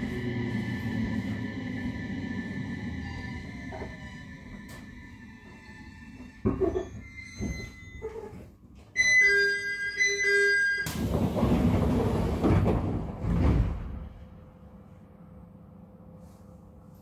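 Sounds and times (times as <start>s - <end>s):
train running noise: 0.0s - 7.6s
rail clatter and knocking: 10.9s - 14.1s.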